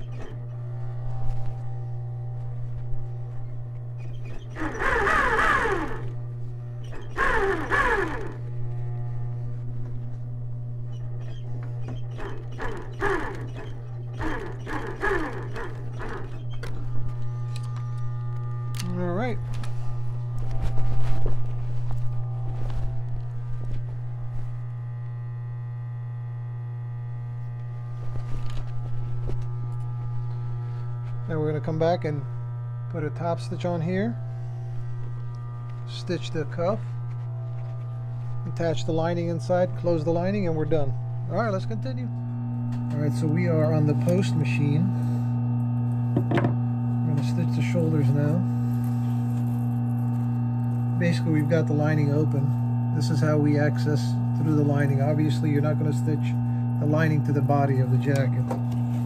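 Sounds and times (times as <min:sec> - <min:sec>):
sewing machine motor hum: 0:00.0 - 0:59.0
sewing machine stitching: 0:04.1 - 0:06.2, 0:06.9 - 0:08.4, 0:11.2 - 0:16.7.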